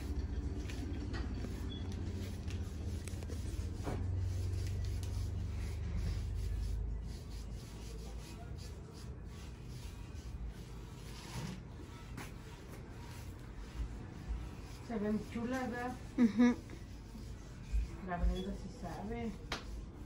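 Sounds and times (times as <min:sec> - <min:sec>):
brush and sponge on plastic: 0:00.0 - 0:20.0.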